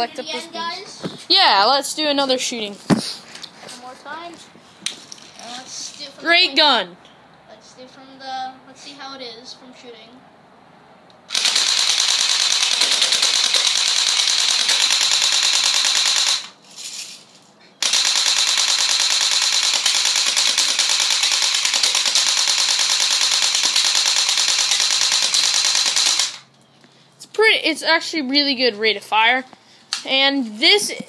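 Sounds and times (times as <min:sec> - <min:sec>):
airsoft gun firing full auto: 0:11.3 - 0:16.6, 0:17.8 - 0:26.5.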